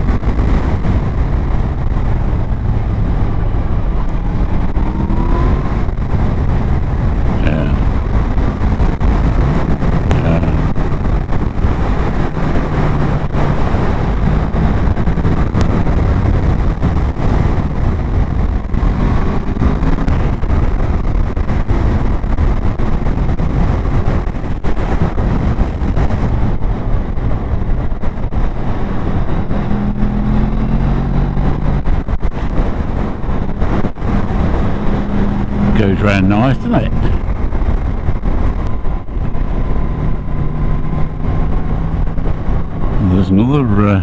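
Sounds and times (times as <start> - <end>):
motorcycle engine running: 0.0 - 44.0
wind and road rush: 0.0 - 44.0.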